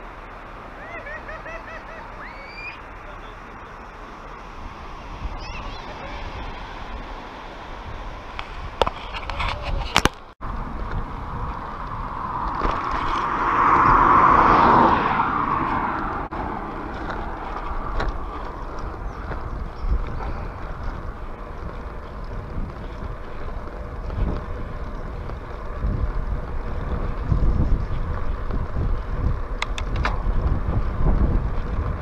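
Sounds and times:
wind buffeting microphone: 0:04.4 - 0:32.0
steady low rumble: 0:10.2 - 0:32.0
loud rushing sound: 0:10.6 - 0:18.4
sharp clicks: 0:29.6 - 0:30.2.

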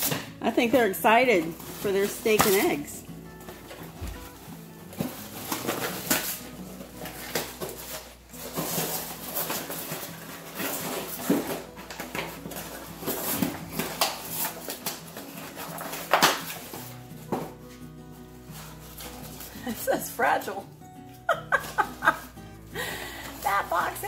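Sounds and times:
dog tearing cardboard: 0:01.4 - 0:19.9.

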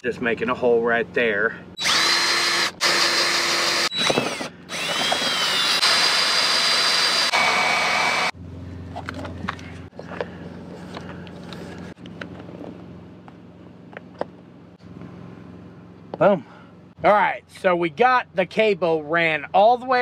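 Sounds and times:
cordless drill whining: 0:01.8 - 0:08.4.

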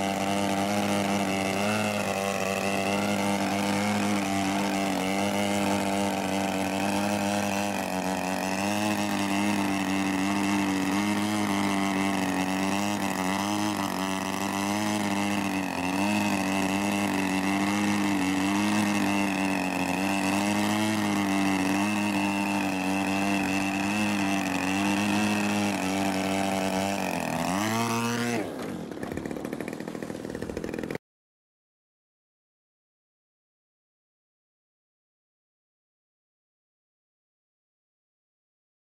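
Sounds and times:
model plane engine at high throttle: 0:00.0 - 0:31.0.

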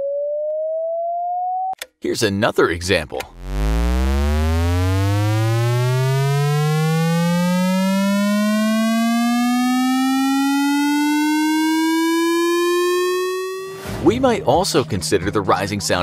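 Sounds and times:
buzzy electronic rising tone: 0:03.3 - 0:13.8.

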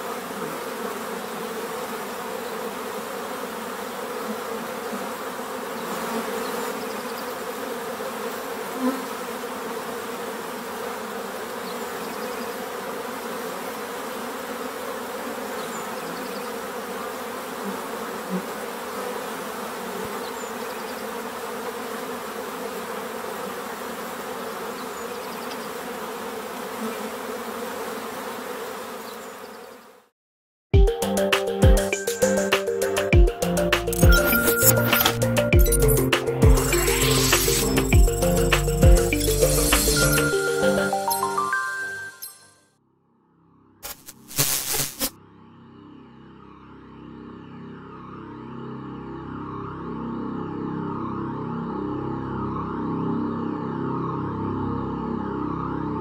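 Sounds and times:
insect-like buzzing hum: 0:00.0 - 0:30.1, 0:31.0 - 0:42.4, 0:43.8 - 0:56.0.

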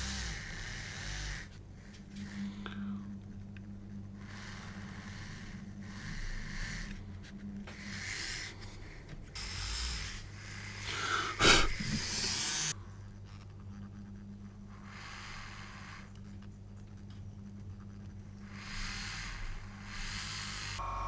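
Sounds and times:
rotary tool motor hum: 0:00.0 - 0:21.0
bit hissing cutting plastic: 0:04.2 - 0:12.8, 0:18.0 - 0:20.8.

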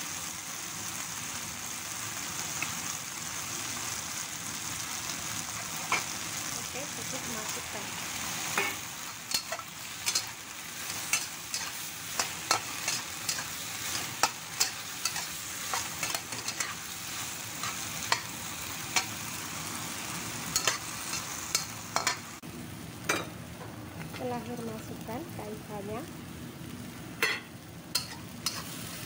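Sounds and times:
frying sizzle: 0:00.0 - 0:29.0.

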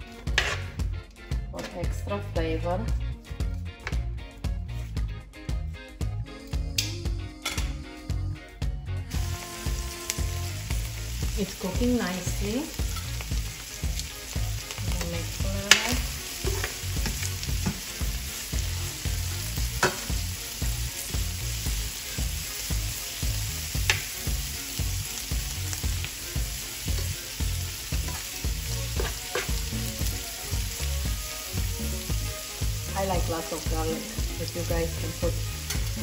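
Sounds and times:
peppers sizzling in a pan: 0:00.0 - 0:02.9, 0:09.1 - 0:36.0
utensil stirring in a pan: 0:09.1 - 0:36.0.

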